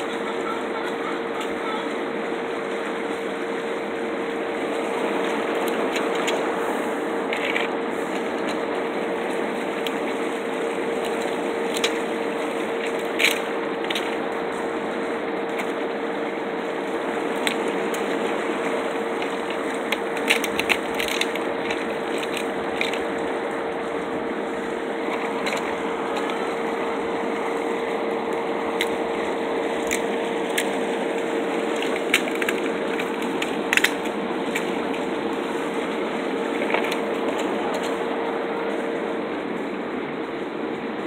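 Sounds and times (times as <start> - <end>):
constant hum: 0.0 - 41.0
steady hiss: 0.0 - 41.0
crab shells clicking in cooler: 19.2 - 23.1, 31.7 - 35.1.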